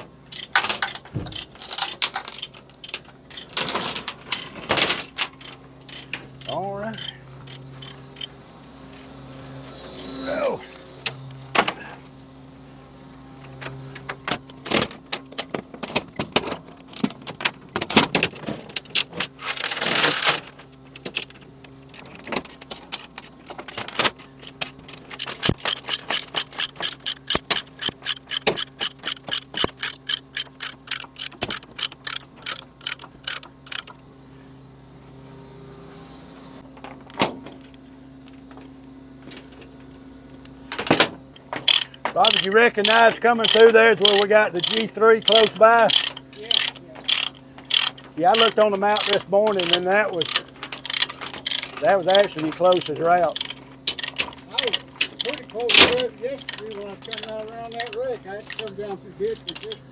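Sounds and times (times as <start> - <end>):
steel chains clanking: 0.0 - 8.4, 9.8 - 12.0, 13.6 - 34.0, 36.7 - 38.4, 40.7 - 59.9
engine hum: 0.0 - 59.9
ratchet clicking: 0.3 - 8.4, 21.9 - 34.0, 41.3 - 59.8.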